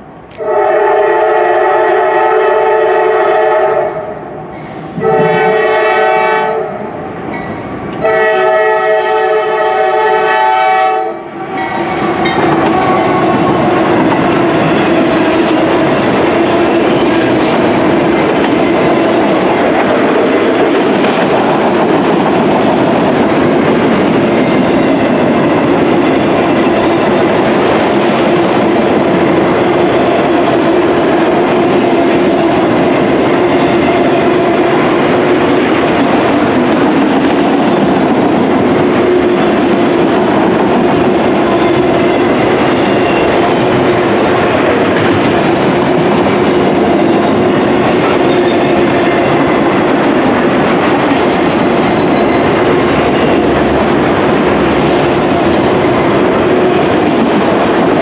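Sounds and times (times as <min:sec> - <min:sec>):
train wheels rumbling on rail: 0:00.0 - 0:58.0
locomotive air horn blasts: 0:00.4 - 0:04.2, 0:04.9 - 0:06.9, 0:08.0 - 0:11.6.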